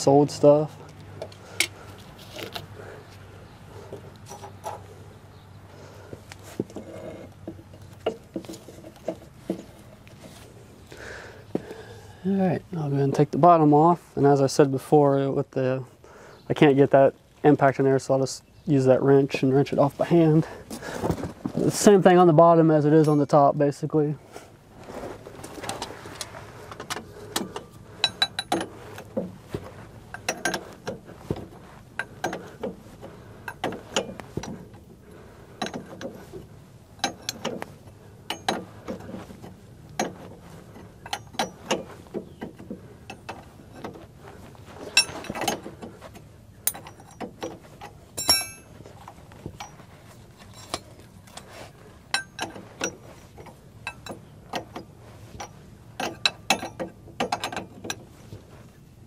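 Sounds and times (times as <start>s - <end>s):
wrench metallic clicks and clinks: 26.9s - 28.8s, 37.0s - 37.6s, 38.3s - 39.1s, 46.6s - 48.7s, 52.1s - 58.0s.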